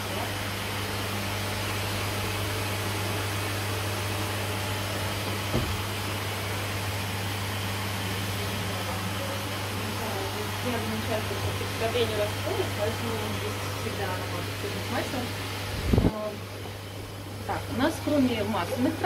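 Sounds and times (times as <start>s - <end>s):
ventilation rushing noise: 0.0s - 19.0s
single knock: 5.5s - 5.8s.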